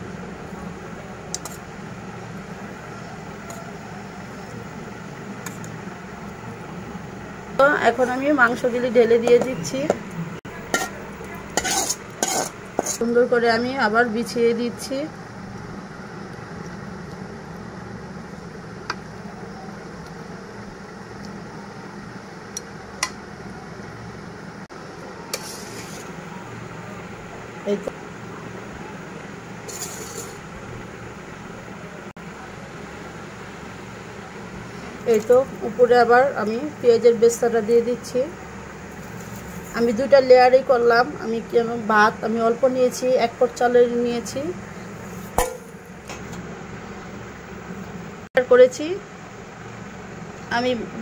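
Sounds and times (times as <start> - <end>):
low mechanical hum: 0.0 - 51.0
spoon scraping: 10.6 - 13.1, 29.6 - 30.4.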